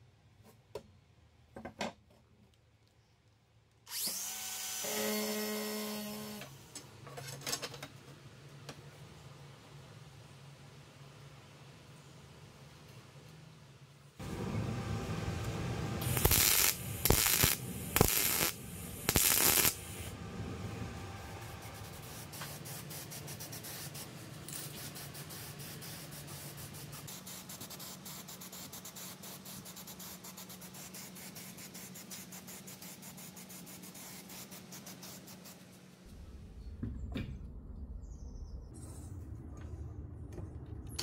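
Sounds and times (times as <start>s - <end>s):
welder crackling bursts: 14.2s - 23.2s
spray paint can hissing: 16.0s - 20.1s, 21.6s - 35.8s.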